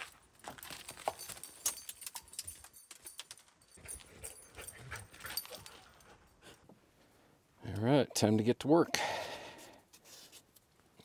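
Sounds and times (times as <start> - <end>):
paws crunching on gravel: 0.0 - 1.9.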